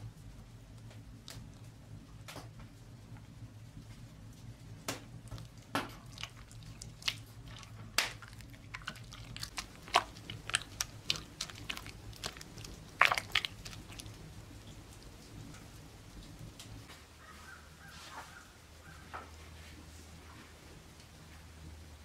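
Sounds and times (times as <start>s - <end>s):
hand squishing batter in bowl: 0.0s - 3.0s, 3.7s - 15.4s.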